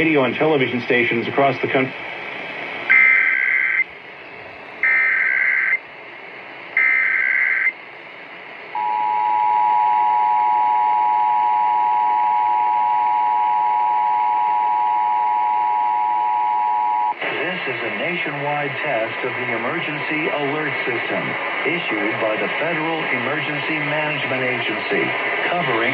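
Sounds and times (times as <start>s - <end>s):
digital data tone bursts: 2.9s - 3.9s.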